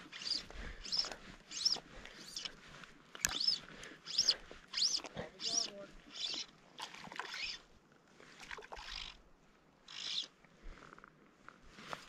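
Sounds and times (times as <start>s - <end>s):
fly line hissing pulls: 0.0s - 2.5s, 3.2s - 6.4s.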